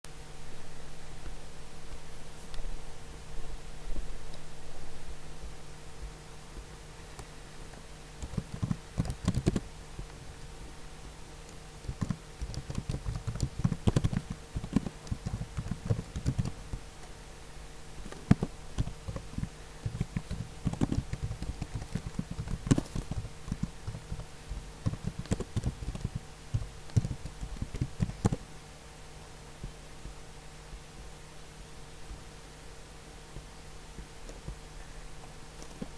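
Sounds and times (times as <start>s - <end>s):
faint steady hum: 0.0s - 35.9s
keyboard key clicks: 8.2s - 9.6s, 11.8s - 16.6s, 24.8s - 28.4s.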